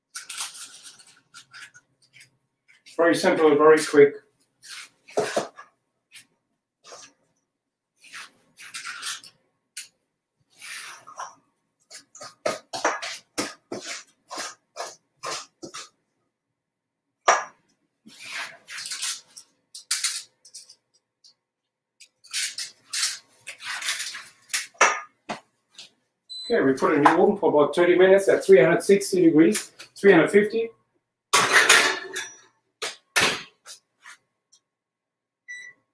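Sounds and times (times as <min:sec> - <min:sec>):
utensils scraping and clinking: 0:18.3 - 0:20.8.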